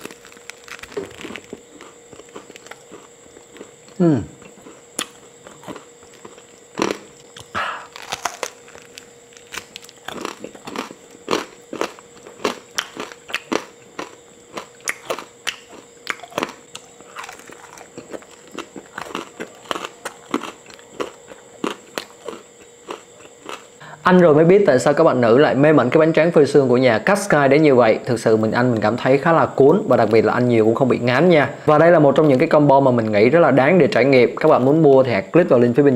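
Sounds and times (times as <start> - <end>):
person chewing crunchy snack: 0.0 - 23.8.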